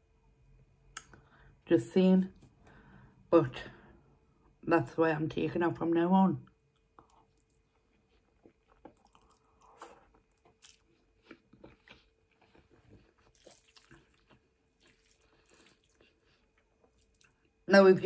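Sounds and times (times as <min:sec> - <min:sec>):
mouth chewing spaghetti: 0:06.7 - 0:17.6.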